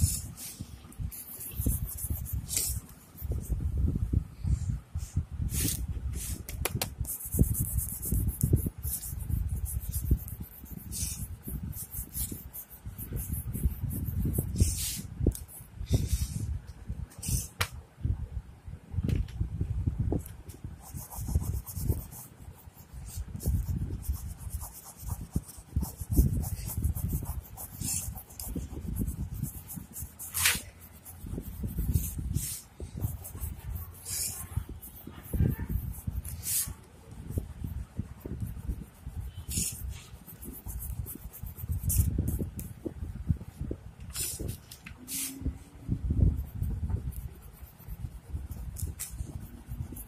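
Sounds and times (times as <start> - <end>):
skin swishing on paper: 0.0 - 3.6, 5.5 - 16.3, 20.9 - 42.7, 44.1 - 45.4, 46.5 - 50.0
fingers scuffing paper: 23.0 - 36.8, 38.2 - 42.7, 44.1 - 45.4.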